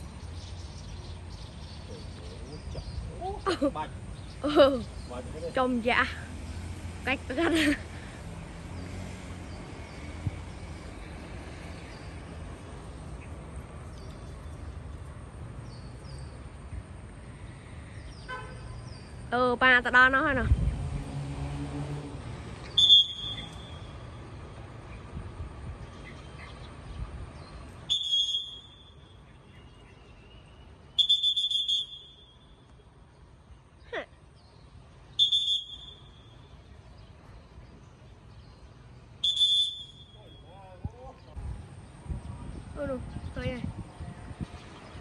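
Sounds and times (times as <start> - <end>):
shrill trilling whistle blasts: 22.7 - 23.9, 27.9 - 29.0, 30.9 - 32.5, 35.1 - 36.3, 39.2 - 40.6.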